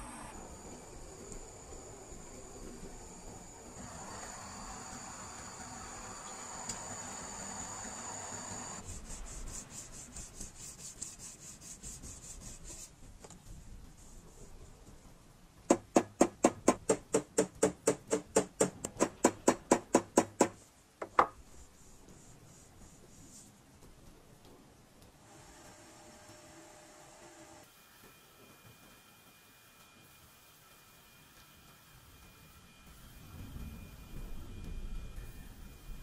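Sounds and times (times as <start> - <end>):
steady hiss: 0.0 - 36.0
rubbing strokes on ringing metal kettle: 8.8 - 13.0.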